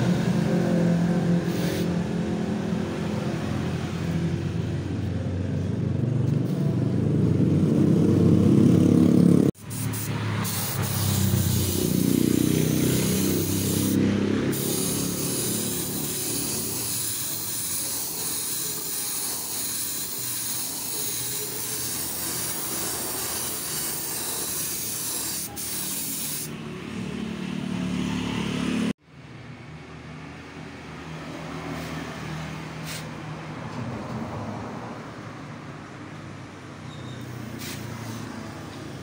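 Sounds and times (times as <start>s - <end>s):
paint spray gun hissing: 9.6s - 26.5s.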